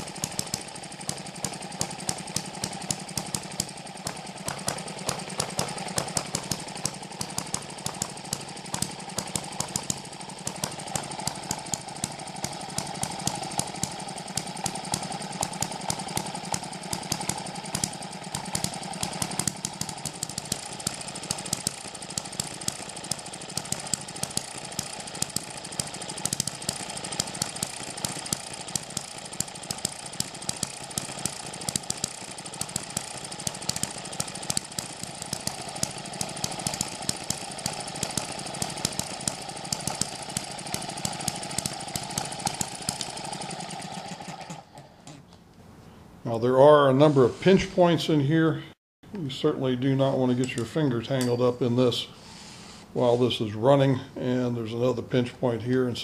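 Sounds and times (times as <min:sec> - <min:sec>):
engine firing pops: 0:00.0 - 0:43.3
model engine clattering: 0:00.0 - 0:44.9.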